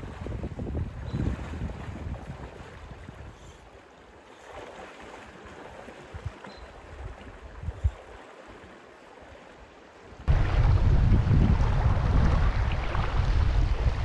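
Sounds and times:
wind rumbling on microphone: 0:00.0 - 0:03.7, 0:06.0 - 0:08.2, 0:10.2 - 0:14.0
river current flowing: 0:00.0 - 0:14.0
low bumps: 0:10.3 - 0:14.0.

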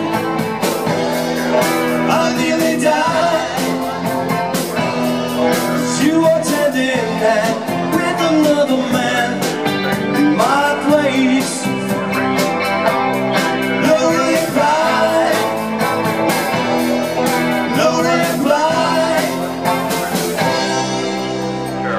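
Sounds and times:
bass guitar: 0:00.0 - 0:21.9
drum kit: 0:00.0 - 0:21.9
electric guitars: 0:00.0 - 0:21.9
person singing: 0:01.5 - 0:12.4, 0:13.4 - 0:16.1, 0:17.3 - 0:20.7.

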